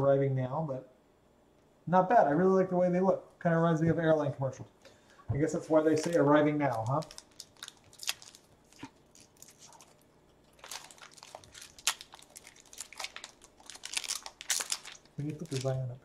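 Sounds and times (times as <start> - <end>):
plastic crinkling and scratching: 5.7 - 16.0.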